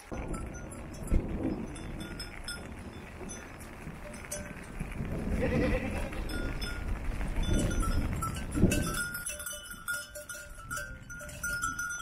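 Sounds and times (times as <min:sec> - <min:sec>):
goats bleating: 0:05.3 - 0:06.4
small collar bell tinkling: 0:07.5 - 0:12.0.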